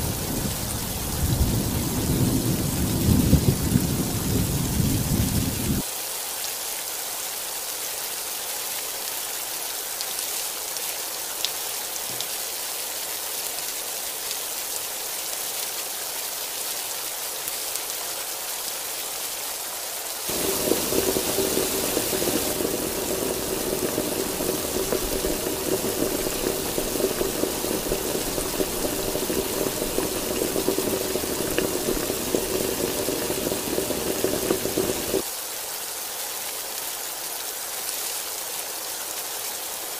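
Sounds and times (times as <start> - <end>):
heavy rain hissing: 0.0 - 36.7
low steady hum: 20.3 - 35.2.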